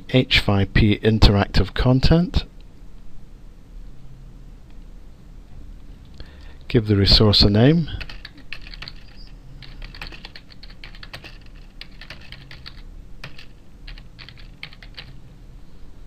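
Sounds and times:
computer keyboard typing: 0:08.0 - 0:15.2.

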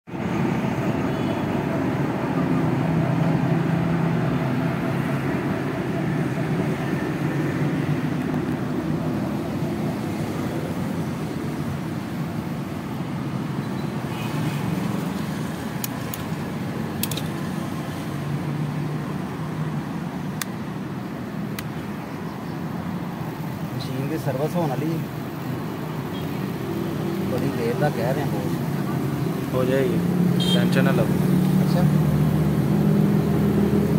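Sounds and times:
street traffic rumble: 0:00.0 - 0:33.9
sharp clicks of device clamps: 0:15.8 - 0:16.4, 0:17.0 - 0:17.4.

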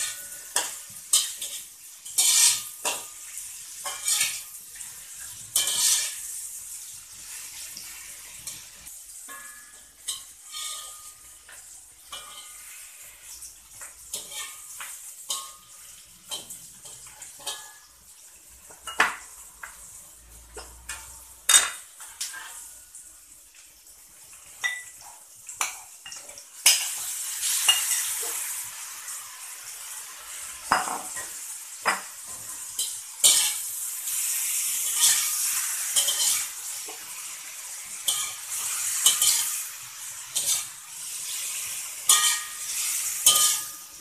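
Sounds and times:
food sizzling: 0:00.0 - 0:44.0
metal spatula clanking on wok: 0:09.3 - 0:11.1, 0:42.1 - 0:42.6, 0:43.2 - 0:43.9.

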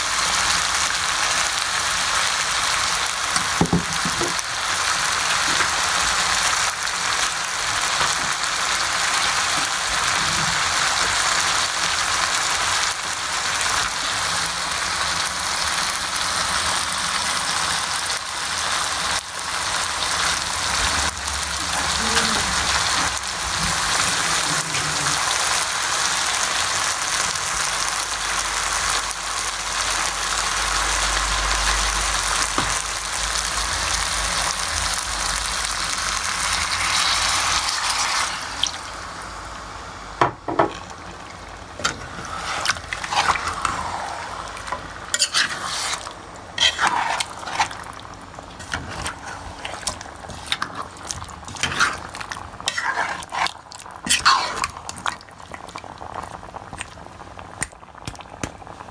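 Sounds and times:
curry sizzling in a pan: 0:00.0 - 0:58.9
spoon scraping and clinking pan: 0:45.2 - 0:46.0.

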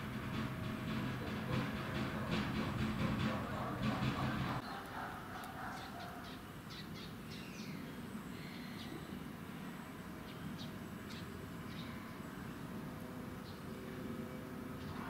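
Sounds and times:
small birds chirping: 0:03.3 - 0:12.7.

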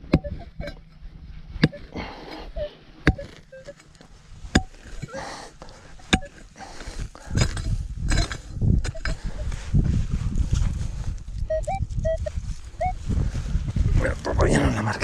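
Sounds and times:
shovel stabbing into dry soil: 0:01.6 - 0:09.4.

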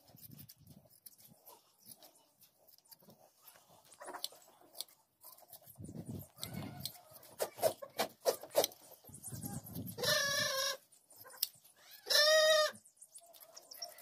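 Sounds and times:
hand shears snipping fleece: 0:00.0 - 0:08.9.

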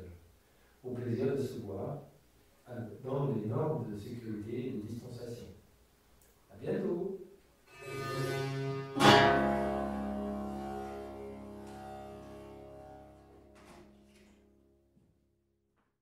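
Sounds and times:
plucked strings ringing: 0:07.7 - 0:14.9.

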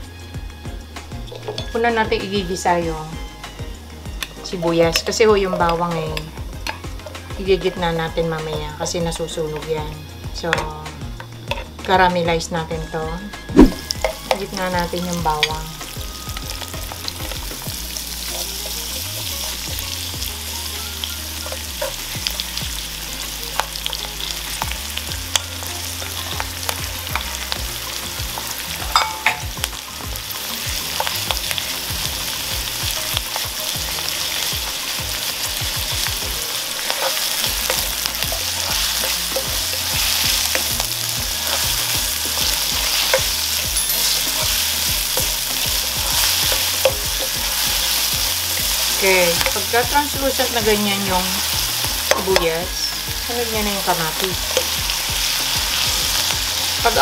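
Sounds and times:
onion sizzling in hot oil: 0:00.0 - 0:57.0
spatula scraping and tapping pan: 0:10.5 - 0:12.0, 0:32.9 - 0:49.8.

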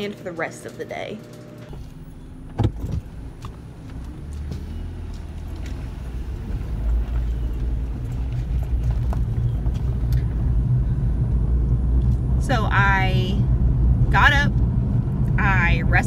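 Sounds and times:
car engine and road rumble: 0:00.9 - 0:16.0.

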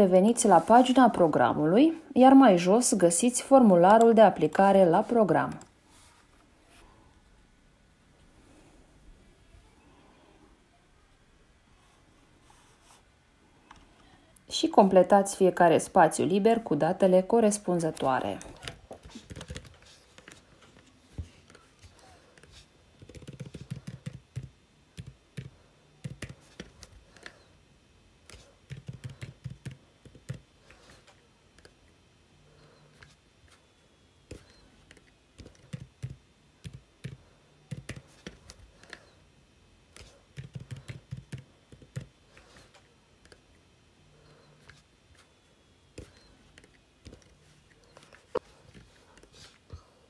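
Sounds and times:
typing on keyboard: 0:18.4 - 0:20.4, 0:22.4 - 0:27.3, 0:28.3 - 0:30.4, 0:34.3 - 0:39.0, 0:40.0 - 0:42.1.

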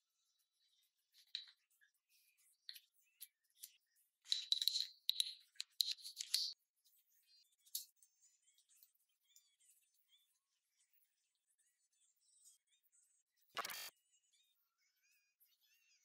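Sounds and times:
metal parts clicking and knocking: 0:04.3 - 0:06.6
metal scraping and clinking: 0:04.3 - 0:06.6.

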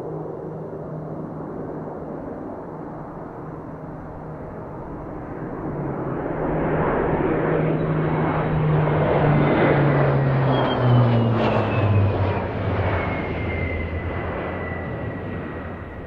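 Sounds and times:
jet engine rushing: 0:05.1 - 0:16.0.

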